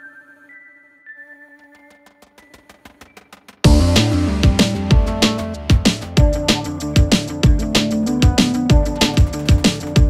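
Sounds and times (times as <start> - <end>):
faint ticking melody: 0.0 - 3.7
electronic track with heavy beat: 2.1 - 10.0.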